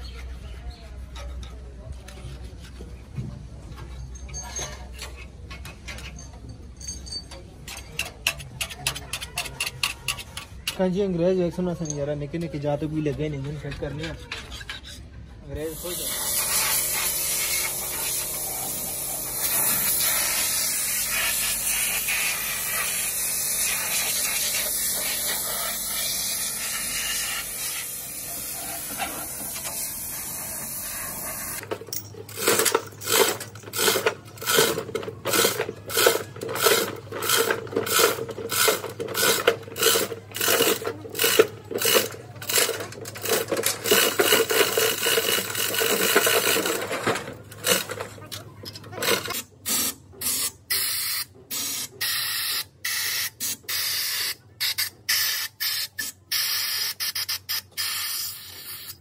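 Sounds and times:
chain hoist rattling: 3.8 - 10.9, 31.4 - 49.5
air spray gun hissing: 15.7 - 31.7, 49.7 - 59.0.

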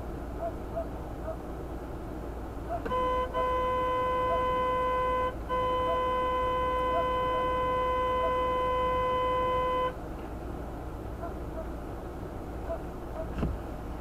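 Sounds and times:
vehicle horn blasts: 2.8 - 10.0.

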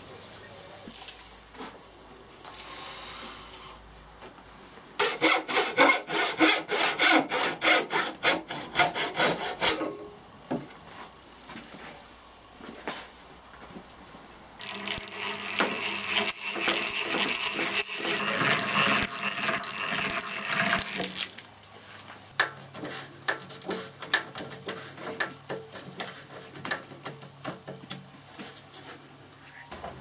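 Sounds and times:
power drill boring into wood: 14.6 - 21.2.

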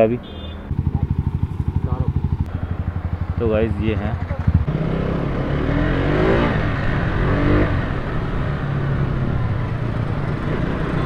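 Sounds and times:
motorcycle engine idling: 0.0 - 5.4
motorcycle engine revving: 0.0 - 11.0.

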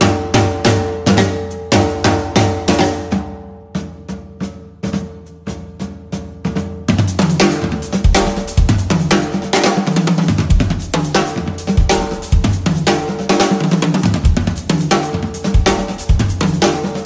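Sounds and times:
drum kit groove: 0.0 - 17.0
backing music: 3.8 - 17.0.

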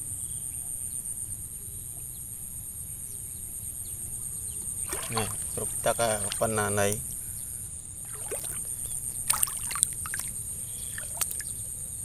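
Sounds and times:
steady high-pitched hiss: 0.0 - 12.0
shallow water splashing: 4.8 - 7.4, 8.0 - 11.6.

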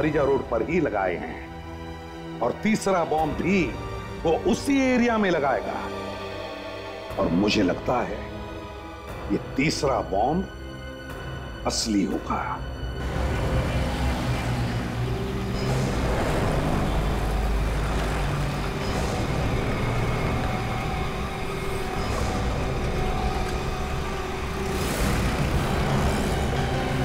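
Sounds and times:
road traffic rumble: 12.6 - 27.0.

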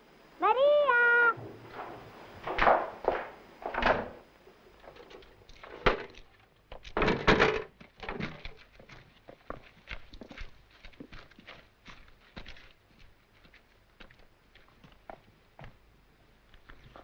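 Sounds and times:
wooden door knocks and thuds: 1.4 - 4.2, 7.0 - 8.2
footsteps on cobblestones: 7.7 - 17.0.

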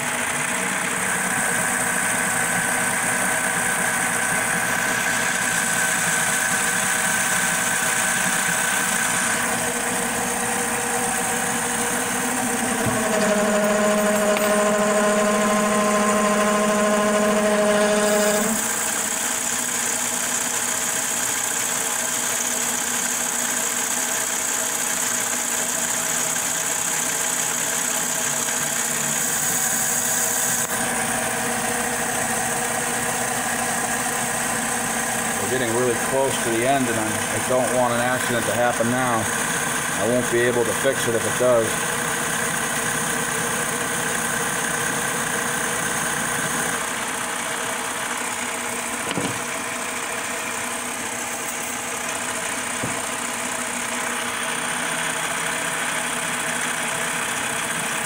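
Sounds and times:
lathe turning metal: 0.0 - 58.0
steady tones: 8.4 - 18.7.

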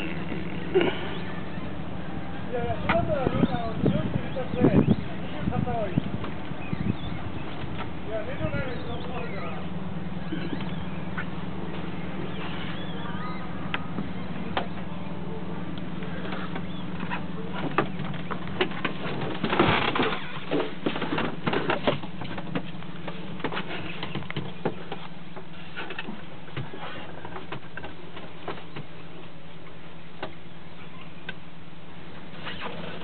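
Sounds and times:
steady low hum: 0.0 - 33.0
plastic bags and boxes rustling: 17.6 - 29.0.

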